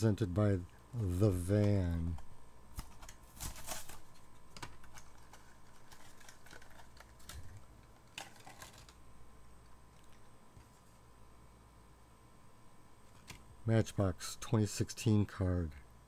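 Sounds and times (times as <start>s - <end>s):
plastic packaging crinkling and clicking: 1.6s - 9.0s, 9.9s - 10.7s.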